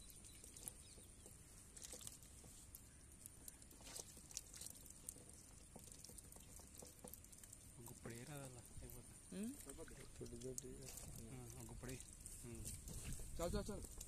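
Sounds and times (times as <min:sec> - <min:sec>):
fish flicking in shallow water: 0:00.0 - 0:09.0.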